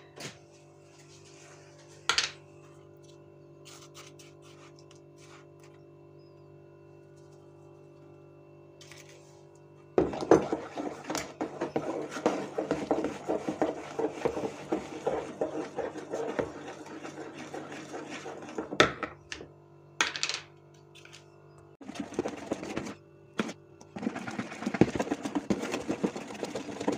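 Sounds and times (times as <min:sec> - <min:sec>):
wooden spatula scraping bowl: 0:10.0 - 0:19.5, 0:21.8 - 0:26.9.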